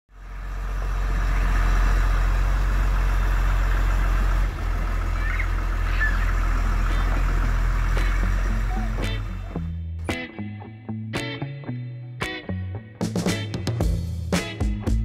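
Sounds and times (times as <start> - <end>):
truck engine at low revs: 0.1 - 10.0.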